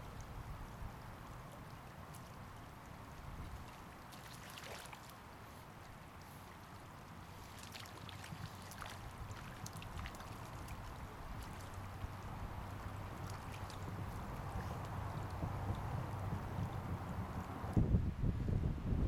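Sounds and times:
wind rumbling on microphone: 0.0s - 4.0s, 8.3s - 19.0s
river water flowing: 0.0s - 17.8s
fish splashing at surface: 3.6s - 5.2s, 12.7s - 16.8s.

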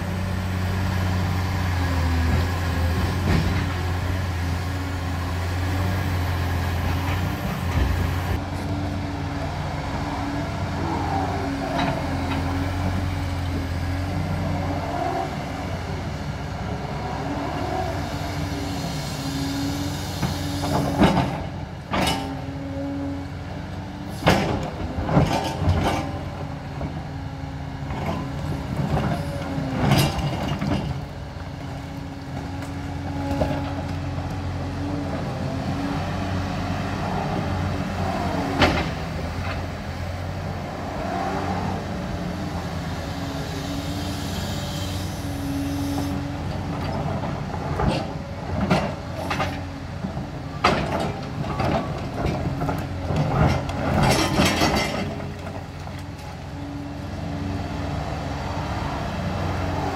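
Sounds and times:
excavator diesel engine running: 0.0s - 59.9s
hydraulic whines: 43.4s - 47.0s.

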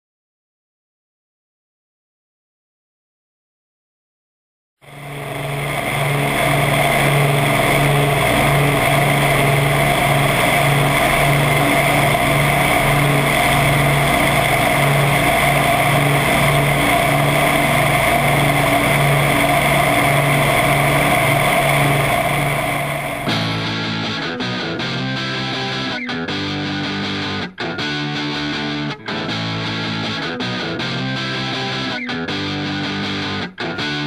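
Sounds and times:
piston engines droning: 4.9s - 23.6s.

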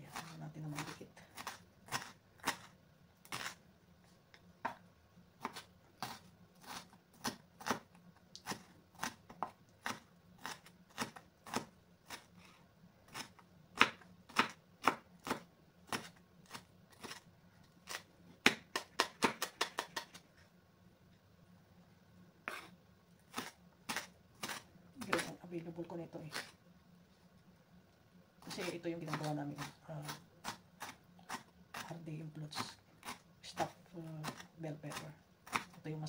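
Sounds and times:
knife chopping on wooden board: 5.4s - 12.3s, 13.1s - 17.2s, 17.9s - 20.2s, 22.4s - 25.4s, 28.5s - 31.9s, 32.5s - 35.8s.

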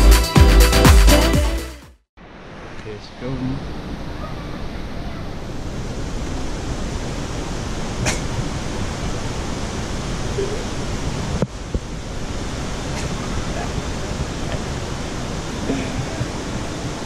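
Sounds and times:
waterfall rushing: 3.6s - 17.0s.

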